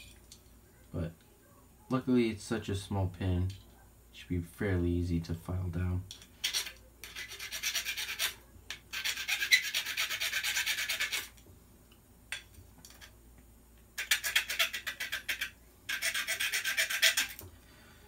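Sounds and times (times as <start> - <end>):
hand file rasping on metal pin: 6.4 - 11.3, 14.0 - 17.4.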